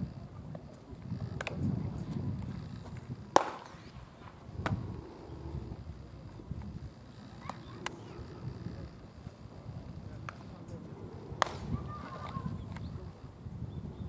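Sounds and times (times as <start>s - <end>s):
low wind rumble: 0.0s - 14.0s
baseballs smacking into gloves: 3.3s - 3.9s, 11.4s - 11.8s.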